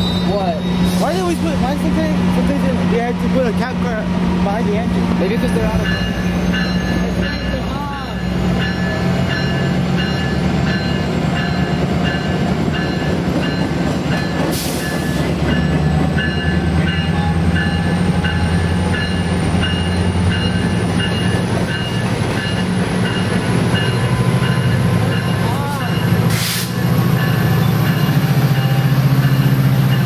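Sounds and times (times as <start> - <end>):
diesel locomotive rumbling: 0.0 - 30.0
locomotive bell ringing: 4.5 - 30.0
brief hiss: 26.3 - 26.8.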